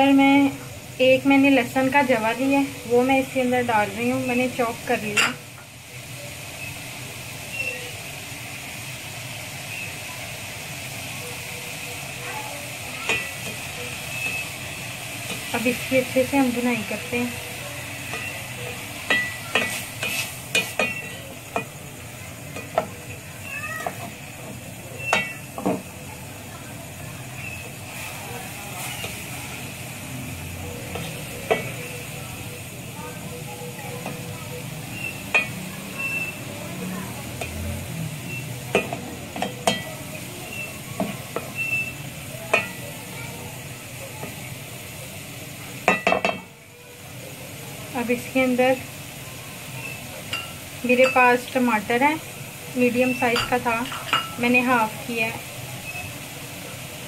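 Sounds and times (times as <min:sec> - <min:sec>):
meat sizzling in oil: 0:00.0 - 0:57.0
spatula scraping a pot: 0:19.1 - 0:21.2.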